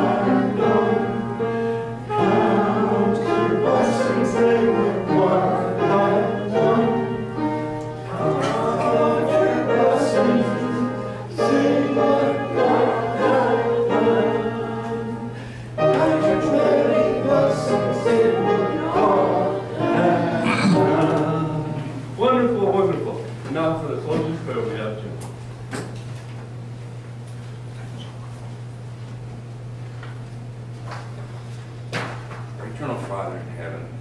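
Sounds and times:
choir singing a hymn: 0.0s - 22.6s
steady low hum: 0.0s - 34.0s.

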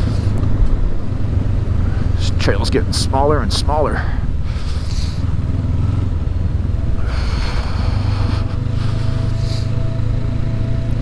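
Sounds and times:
motorcycle engine running: 0.0s - 11.0s.

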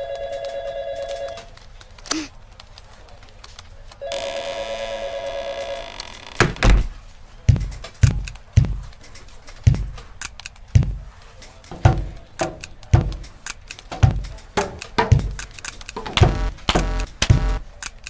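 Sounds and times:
heavy thuds: 6.4s - 9.0s, 10.7s - 11.2s, 11.8s - 17.6s.

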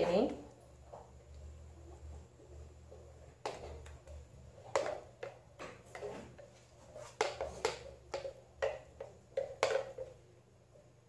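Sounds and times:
spatula scraping plastic jar: 5.9s - 8.8s.

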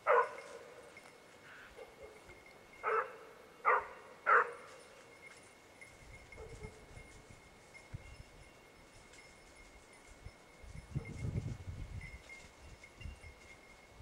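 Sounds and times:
hound baying: 0.0s - 4.9s.

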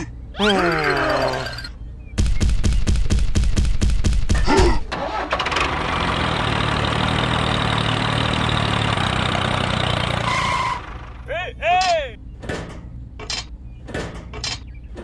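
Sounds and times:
tractor engine cranking and running: 4.9s - 11.3s.

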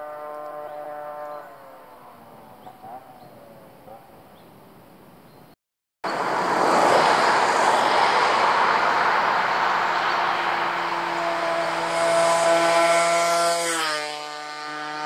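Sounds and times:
two-stroke engine approaching: 0.0s - 3.2s, 6.1s - 15.0s
cars passing: 6.0s - 15.0s.

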